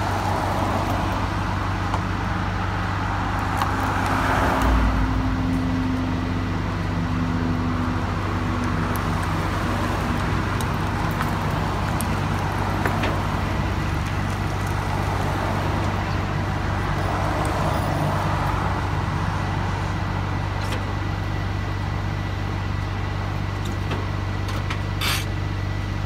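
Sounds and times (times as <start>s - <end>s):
truck engine idling: 0.0s - 4.0s, 4.9s - 26.0s
car passing: 2.5s - 5.8s.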